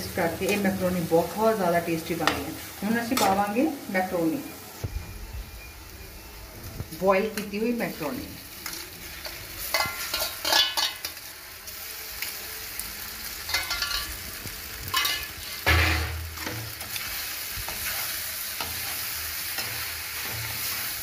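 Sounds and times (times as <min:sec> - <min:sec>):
frying sizzle: 0:00.0 - 0:21.0
metal spatula scraping pan: 0:09.2 - 0:11.2.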